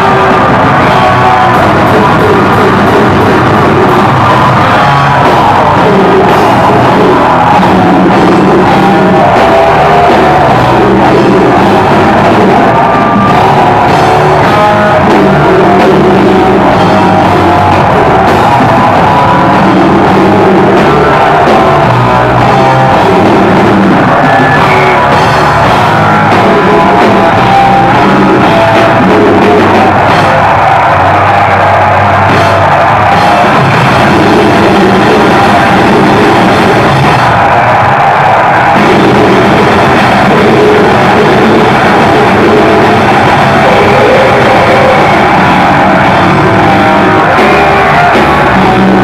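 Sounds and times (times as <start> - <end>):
drum kit: 0.0 - 49.0
electric guitars: 0.0 - 49.0
person singing: 38.7 - 49.0.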